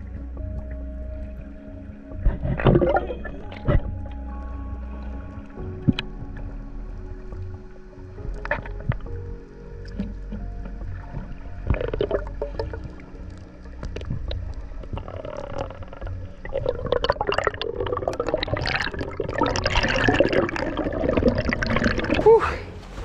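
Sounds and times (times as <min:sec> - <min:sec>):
bubbles and gurgling water: 0:00.0 - 0:22.7
underwater clicks and pops: 0:02.1 - 0:04.6, 0:05.8 - 0:06.6, 0:08.2 - 0:22.1.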